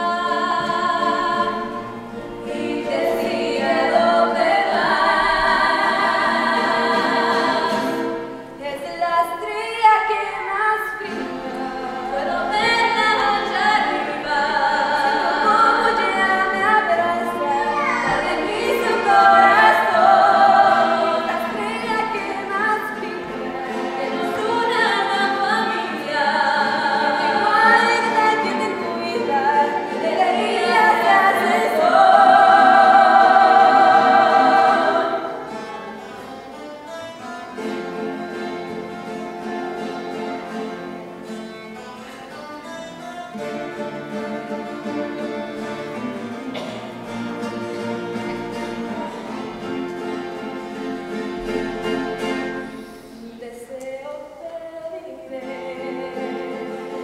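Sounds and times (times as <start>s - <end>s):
woman singing with vibrato: 0.0s - 35.5s, 53.2s - 57.0s
music: 0.0s - 57.0s.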